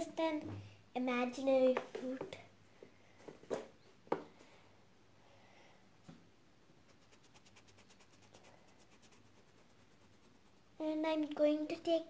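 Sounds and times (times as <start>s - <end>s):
oil pastel scratching on paper: 6.9s - 10.7s.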